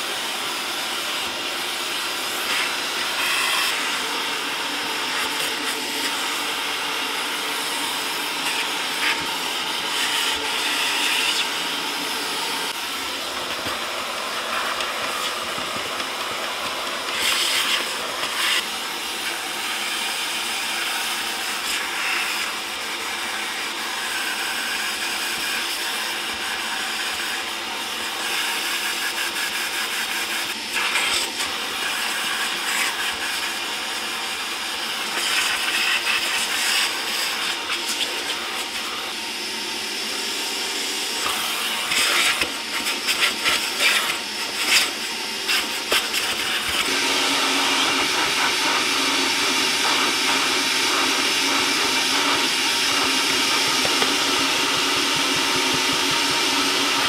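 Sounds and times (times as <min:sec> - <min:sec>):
vacuum cleaner running: 0:00.0 - 0:57.0.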